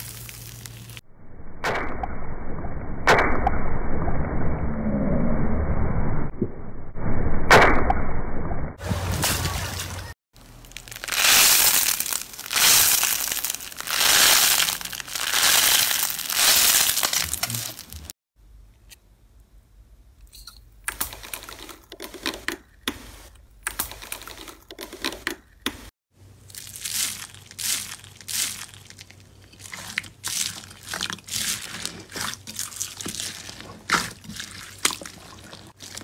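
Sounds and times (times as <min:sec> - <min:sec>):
foil crinkling and crackling: 0:10.4 - 0:18.1, 0:26.5 - 0:34.8
hand pressing foam beads: 0:11.2 - 0:18.0
hands squeezing sponge: 0:26.5 - 0:36.0.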